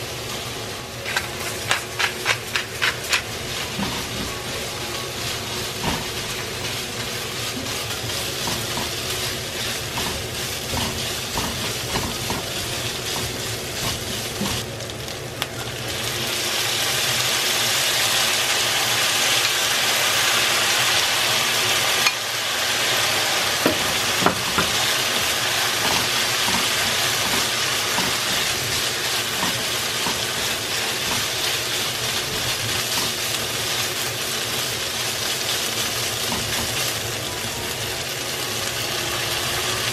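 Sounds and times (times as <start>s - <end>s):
food sizzling in a wok: 0.0s - 39.9s
spatula scraping and knocking pan: 1.1s - 4.4s, 9.7s - 14.6s, 25.7s - 31.5s.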